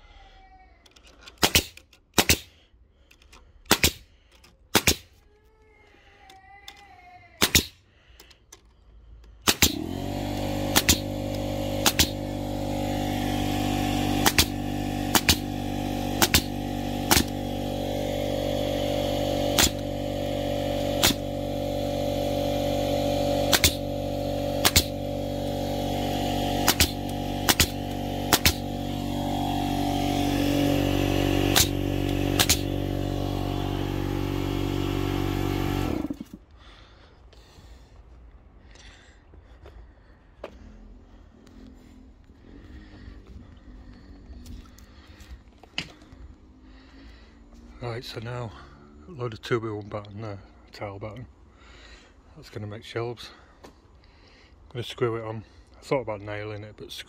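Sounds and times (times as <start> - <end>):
nail gun firing: 1.4 - 2.6, 3.6 - 5.2, 7.4 - 7.8, 9.4 - 36.4
air compressor running: 9.2 - 37.9, 38.9 - 47.8.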